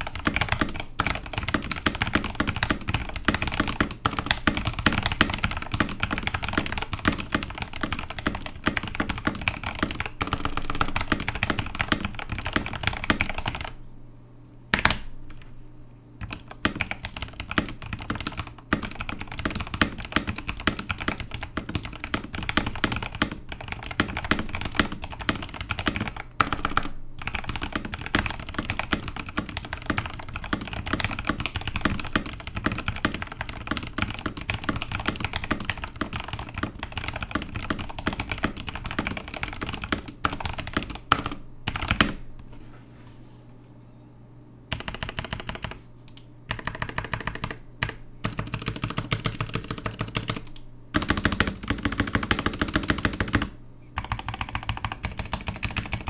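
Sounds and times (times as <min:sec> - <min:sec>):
mechanical keyboard typing: 0:00.0 - 0:13.8, 0:16.2 - 0:42.2, 0:44.7 - 0:56.0.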